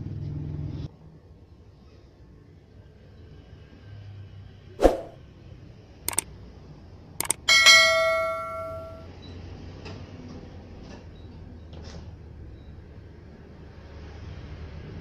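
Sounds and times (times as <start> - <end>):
quick clicks: 7.2 - 7.5
bell-like ring: 7.2 - 9.1.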